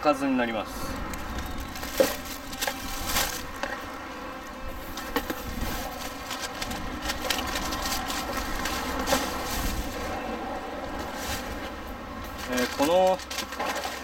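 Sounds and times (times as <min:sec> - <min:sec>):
plastic packaging crinkling: 0:01.0 - 0:03.8, 0:05.0 - 0:10.2, 0:12.3 - 0:14.0.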